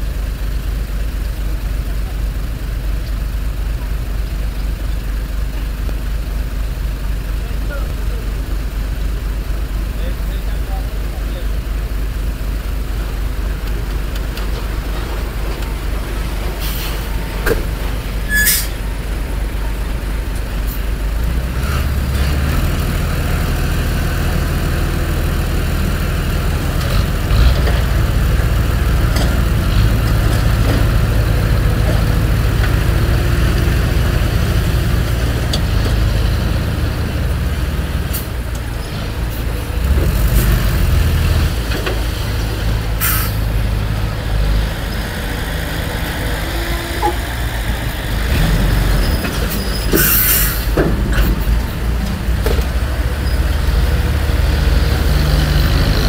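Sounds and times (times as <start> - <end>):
heavy diesel engines droning: 0.0 - 56.0
short sharp hisses: 16.6 - 17.0, 43.0 - 43.4, 50.0 - 50.7.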